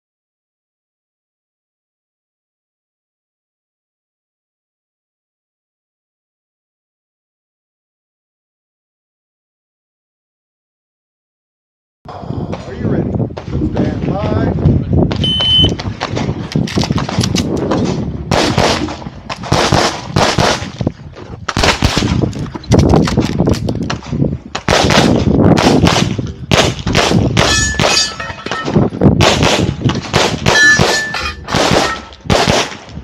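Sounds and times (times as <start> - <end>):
pistol shots: 16.0 - 20.7, 21.5 - 22.3, 23.9 - 33.0
steel targets clanging: 27.4 - 28.9, 30.5 - 32.2.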